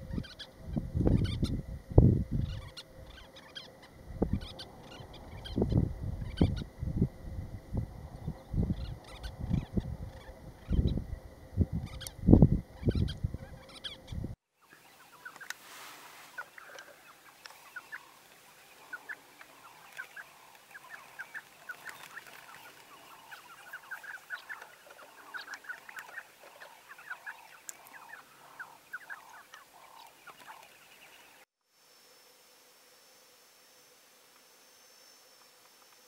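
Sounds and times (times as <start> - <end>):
sandgrouse calling: 0.0 - 1.6, 2.3 - 6.7, 8.3 - 11.0, 12.8 - 31.4.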